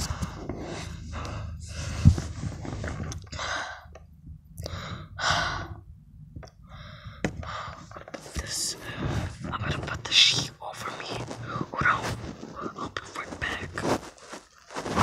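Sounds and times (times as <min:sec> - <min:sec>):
person breathing hard: 0:00.0 - 0:05.9, 0:06.6 - 0:09.5.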